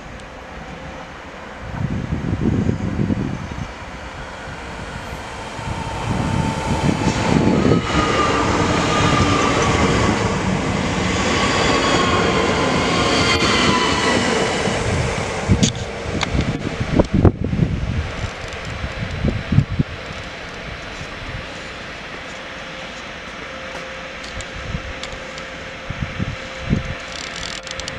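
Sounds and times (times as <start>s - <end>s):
electric train passing: 0.0s - 27.9s
electric whine falling in pitch: 2.4s - 10.7s.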